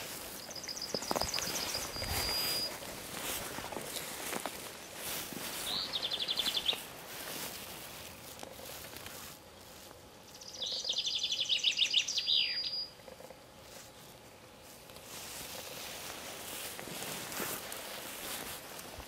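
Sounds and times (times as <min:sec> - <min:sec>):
songbird trilling: 0:00.3 - 0:02.8, 0:05.6 - 0:06.8, 0:10.3 - 0:13.0.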